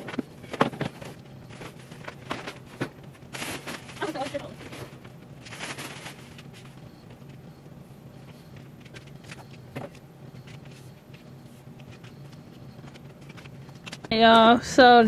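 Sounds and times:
steady low hum: 0.0 - 15.0
curtains rustling: 3.3 - 6.8.

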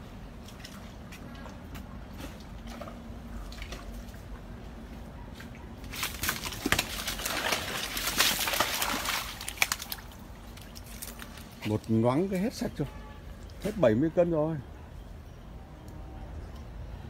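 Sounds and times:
crocodiles splashing in water: 5.8 - 11.2.

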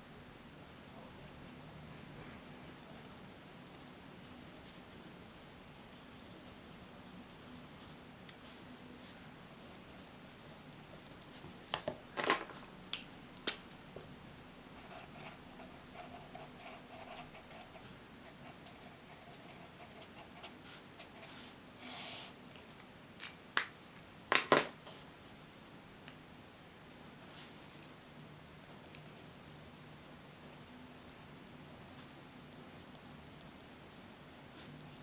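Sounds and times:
faint writing on paper: 0.8 - 11.6, 14.7 - 22.4.

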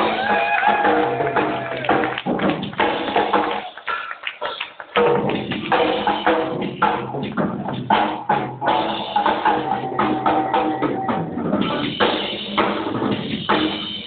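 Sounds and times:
live band music with drums: 0.0 - 3.8, 4.5 - 14.0.

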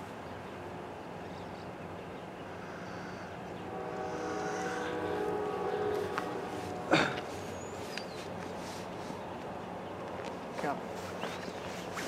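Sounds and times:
low steady hum: 0.0 - 8.1
distant locomotive horn: 2.7 - 8.0.

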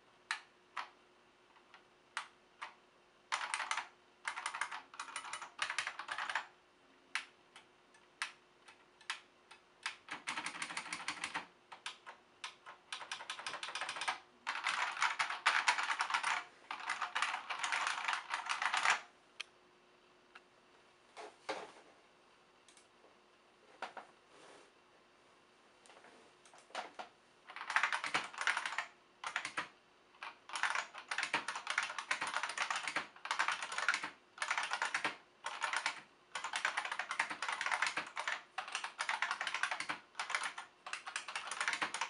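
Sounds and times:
typing on mechanical keyboard: 0.3 - 6.5, 7.1 - 19.1, 26.8 - 42.0.

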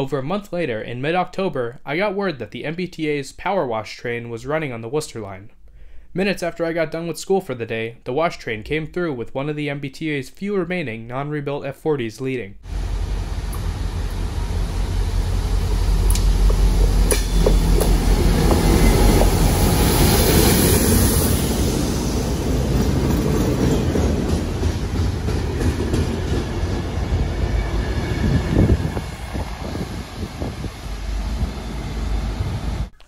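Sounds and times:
diesel locomotive engine droning: 12.7 - 32.9
train wheels rumbling on rail: 12.7 - 32.9.

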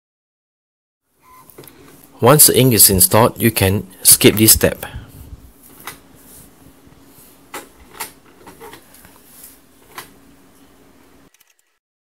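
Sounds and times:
low steady hum: 1.2 - 11.3.

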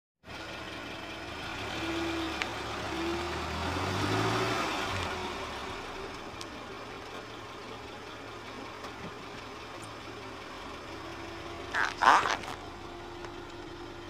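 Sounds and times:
car engine running: 0.2 - 14.0
squeaky tones: 11.7 - 12.6
inflatable toy squashed: 11.8 - 12.6.

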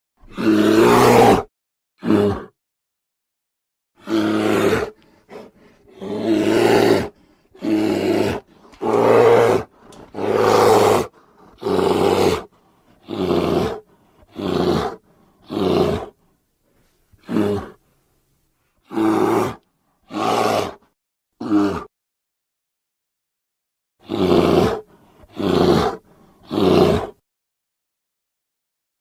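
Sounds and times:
bear roaring: 0.2 - 2.6, 4.0 - 16.2, 17.2 - 17.8, 18.9 - 20.8, 21.4 - 21.9, 24.0 - 27.2
bear grunts: 4.0 - 16.2, 17.2 - 17.8, 21.4 - 21.9, 24.0 - 27.2.

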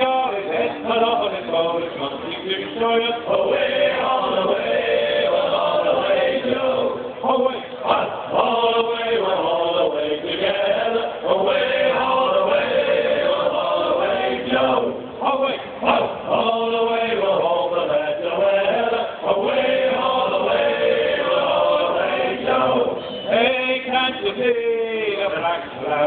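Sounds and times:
men singing in harmony: 0.0 - 26.0.

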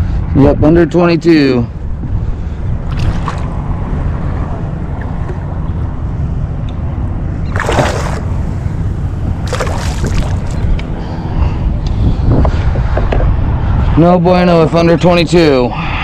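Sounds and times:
wind rumble on microphone: 0.0 - 16.0
water splashing: 2.9 - 3.6, 7.5 - 8.5, 9.4 - 10.6
water moving against hull: 7.5 - 8.7, 9.3 - 10.8.

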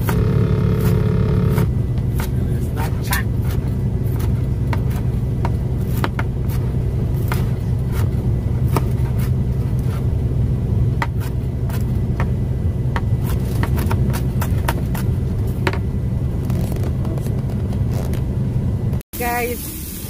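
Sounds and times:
diesel engine drone: 0.0 - 19.0.

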